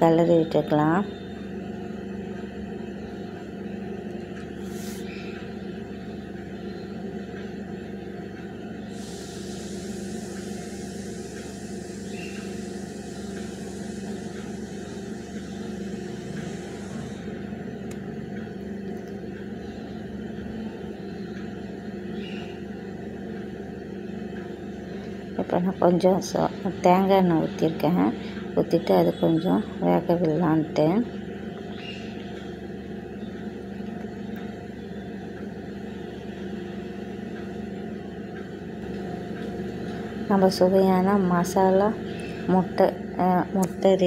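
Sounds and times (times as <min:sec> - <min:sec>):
low machine hum: 0:00.0 - 0:44.0
band of hiss: 0:04.6 - 0:05.1, 0:08.9 - 0:17.4.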